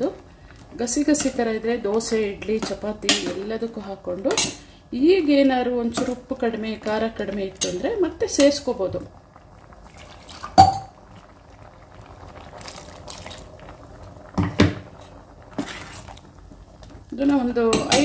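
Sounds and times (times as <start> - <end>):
simmering liquid bubbling: 8.2 - 17.6.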